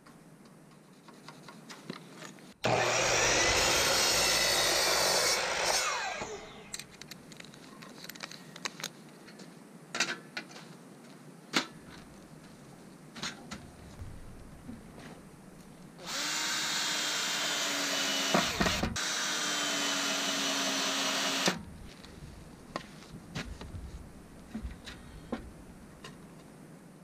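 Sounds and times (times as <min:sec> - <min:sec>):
miter saw cutting wood: 0:02.6 - 0:06.8, 0:16.0 - 0:21.6
saw blade winding down whine: 0:02.6 - 0:06.8, 0:16.0 - 0:21.6.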